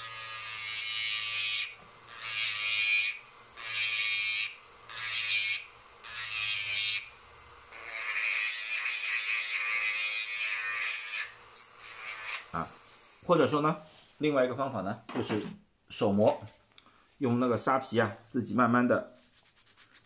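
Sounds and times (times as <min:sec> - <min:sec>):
rotary tool grinding wood: 0:00.0 - 0:13.2.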